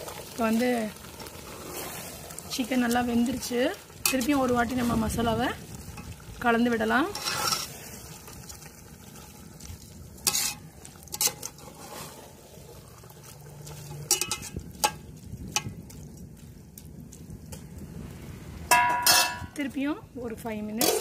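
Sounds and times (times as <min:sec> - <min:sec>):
low sizzle: 0:00.0 - 0:21.0
metal spoon scraping a metal pot: 0:07.1 - 0:07.9, 0:10.2 - 0:12.2, 0:13.7 - 0:15.0, 0:18.7 - 0:19.6.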